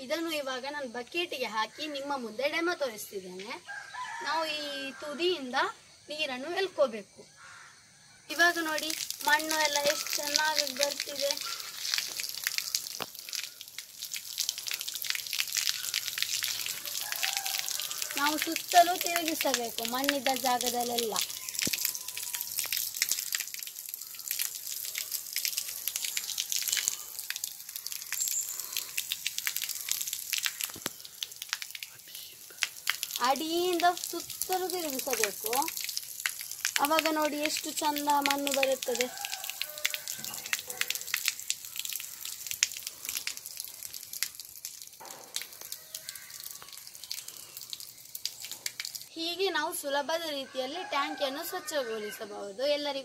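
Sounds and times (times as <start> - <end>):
water splattering on concrete: 8.3 - 49.1.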